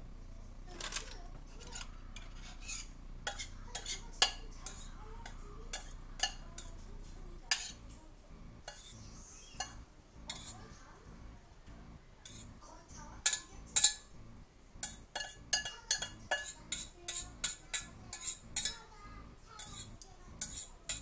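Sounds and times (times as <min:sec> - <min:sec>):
metal utensil clinking in pot: 0:00.8 - 0:06.8, 0:07.5 - 0:07.8, 0:13.2 - 0:14.1, 0:14.8 - 0:18.8.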